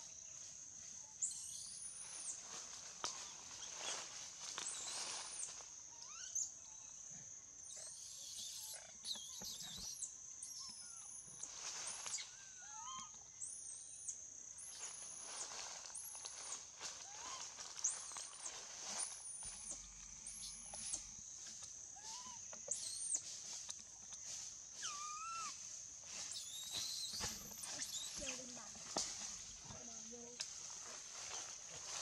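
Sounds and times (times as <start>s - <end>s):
insect drone: 0.0s - 32.0s
high whistled bird calls: 26.3s - 28.5s.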